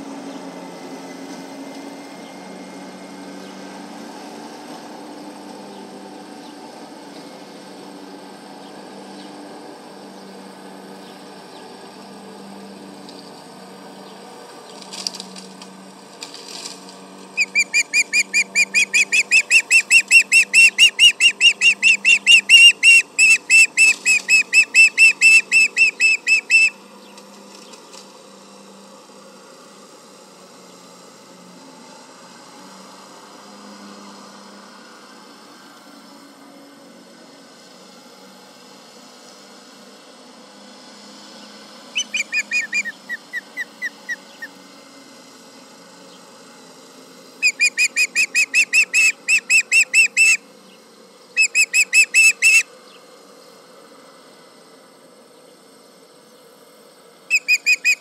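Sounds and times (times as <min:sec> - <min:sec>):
osprey alarm calls: 0:17.4 - 0:26.8, 0:42.0 - 0:44.6, 0:47.4 - 0:50.4, 0:51.4 - 0:52.7, 0:57.3 - 0:58.0.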